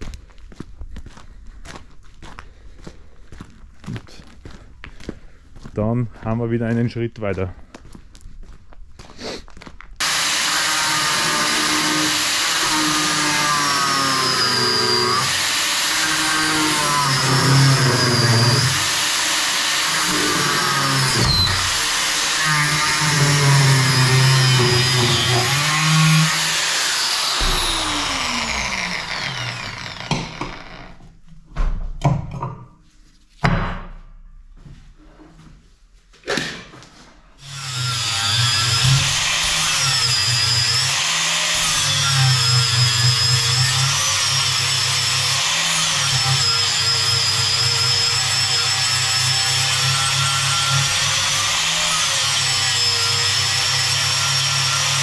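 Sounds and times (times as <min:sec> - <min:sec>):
power tool whining: 0:10.0 - 0:31.0, 0:37.4 - 0:55.0.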